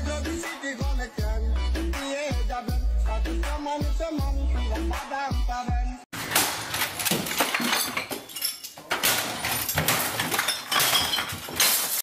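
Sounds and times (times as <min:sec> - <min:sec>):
objects breaking: 0:06.2 - 0:12.0
objects smashed with a stick: 0:06.2 - 0:12.0
glass clinking: 0:07.1 - 0:12.0.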